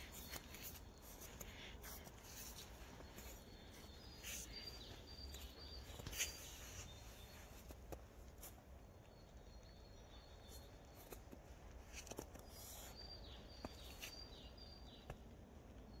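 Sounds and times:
footsteps on snow: 0.0s - 8.8s.

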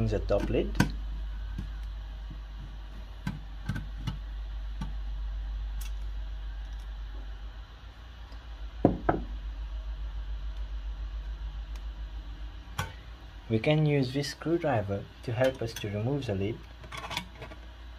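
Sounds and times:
low steady hum: 0.0s - 17.9s
louder knocks: 8.8s - 9.3s.

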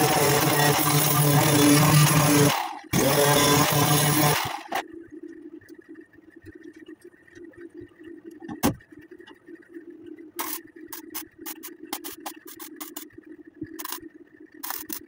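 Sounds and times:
angle grinder grinding steel: 0.0s - 4.8s
low steady hum: 3.7s - 15.0s.

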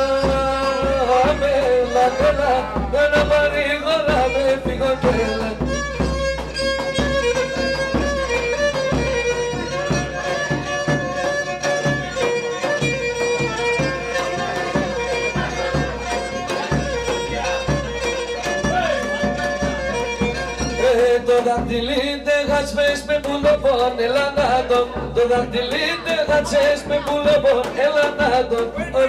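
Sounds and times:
bowed lyra folk melody: 0.0s - 22.2s.

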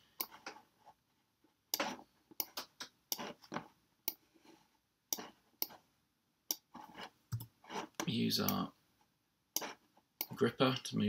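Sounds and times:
computer mouse clicking: 6.5s - 6.7s.

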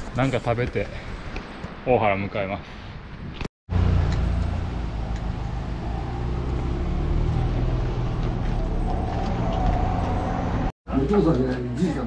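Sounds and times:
vehicle engine droning: 3.7s - 10.7s.

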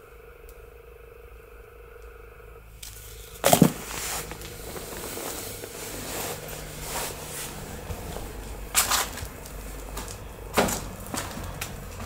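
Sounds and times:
packaging rustling and scraping: 2.8s - 12.0s
sudden loud rustle or knock: 3.4s - 8.1s.

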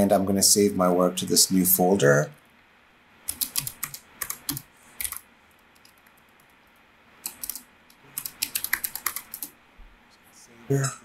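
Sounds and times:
keyboard typing: 3.3s - 9.6s.

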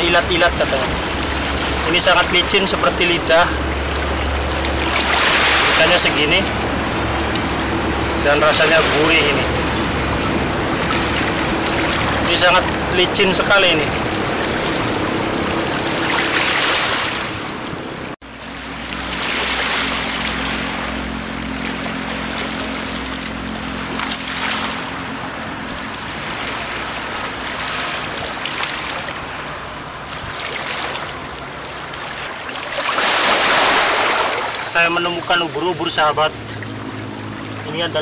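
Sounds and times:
small waves washing against rocks: 3.6s - 6.5s, 30.0s - 34.7s.

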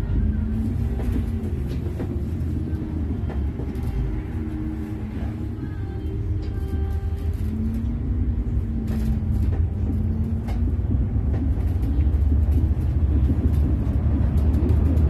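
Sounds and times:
bus driving rumble: 0.0s - 15.0s
low wavering hum: 0.0s - 15.0s.

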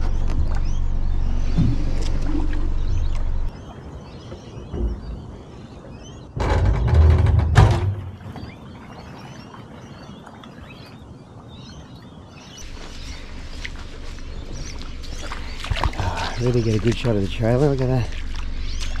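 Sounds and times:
faint bird chirps: 8.2s - 19.0s
outboard motor running: 12.6s - 19.0s.

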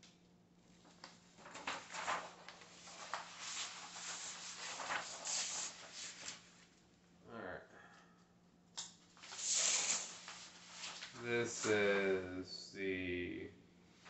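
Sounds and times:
paper sheets rustling and sliding: 1.4s - 6.5s, 9.2s - 12.1s.

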